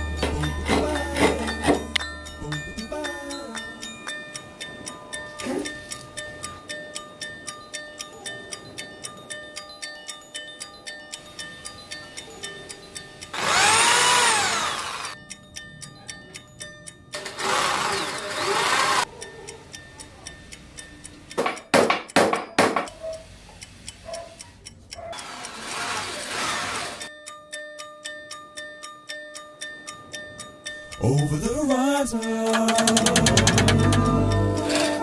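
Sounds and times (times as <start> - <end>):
background music with ticking beat: 0.0 - 25.6, 27.0 - 35.0
electric drill boring into wood: 13.4 - 15.2, 17.2 - 19.0, 25.3 - 27.0.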